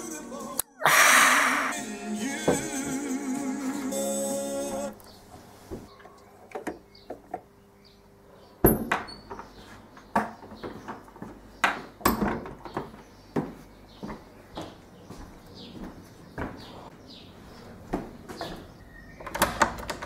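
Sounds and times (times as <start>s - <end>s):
music: 0.0s - 0.6s, 1.7s - 5.0s.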